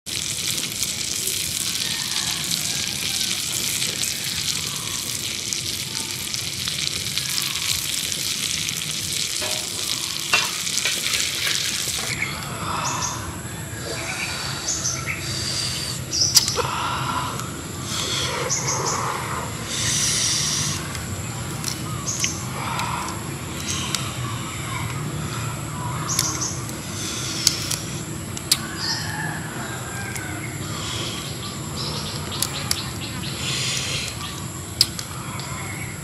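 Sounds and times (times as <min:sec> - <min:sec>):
prawns sizzling on hot stone: 0:00.1 - 0:12.9, 0:14.6 - 0:36.0.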